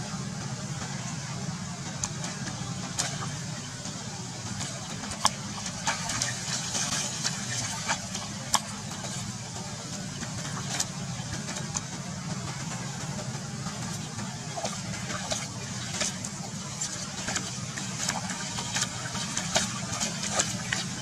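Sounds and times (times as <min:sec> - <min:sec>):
steady low hum: 0:00.0 - 0:21.0
monkeys splashing in puddle: 0:01.9 - 0:21.0.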